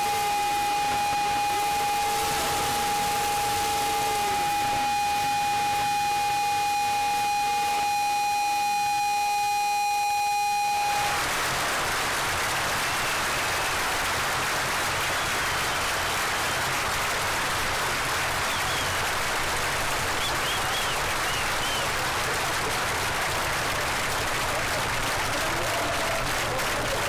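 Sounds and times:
high electronic tone: 0.0s - 11.2s
crowd applauding: 0.0s - 27.0s
short whistles: 18.4s - 19.1s, 20.2s - 22.0s.

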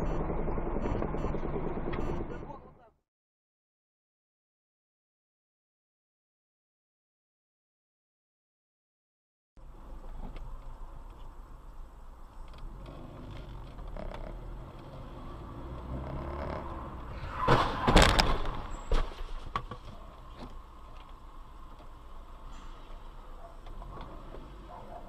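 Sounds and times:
low road hum: 0.0s - 3.0s, 9.6s - 25.0s
cars crashing: 16.9s - 19.5s.

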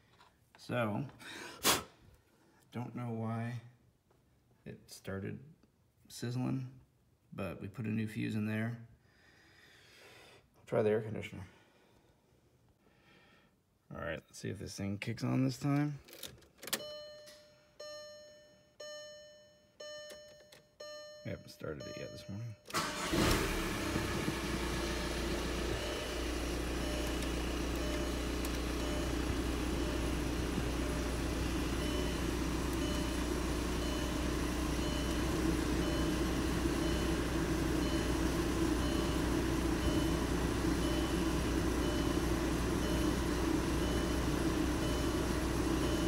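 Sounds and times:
faint high-pitched beep: 16.8s - 22.7s
diesel engine idling: 22.7s - 46.0s.

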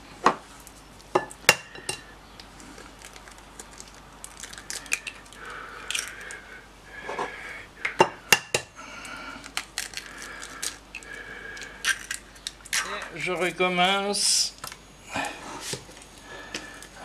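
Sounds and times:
eggshell crackling apart: 2.4s - 6.4s, 9.0s - 13.0s.

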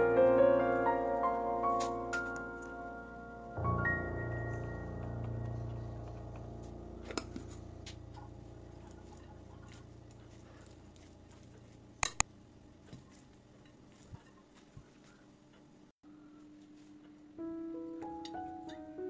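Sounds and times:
faint piano music: 0.0s - 12.0s, 16.2s - 19.0s.

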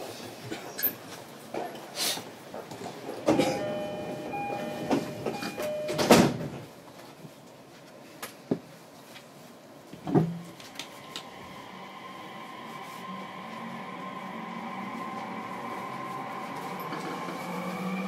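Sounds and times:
two-tone train door chime: 3.3s - 6.4s.

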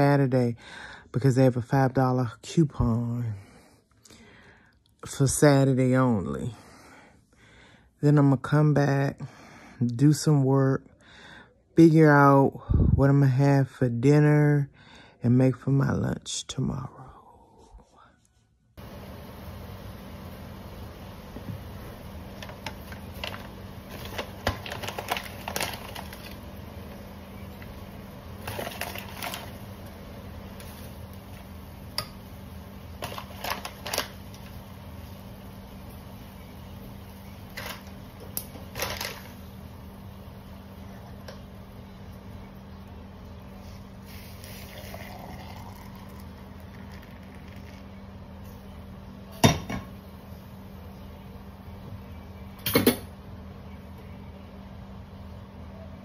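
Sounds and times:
faint steady hum: 0.0s - 56.0s
hot liquid pouring into cup: 18.8s - 48.5s.

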